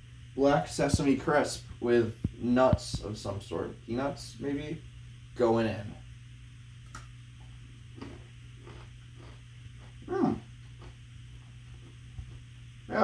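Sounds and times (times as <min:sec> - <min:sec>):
low steady hum: 0:00.0 - 0:13.0
man chewing: 0:06.9 - 0:12.4.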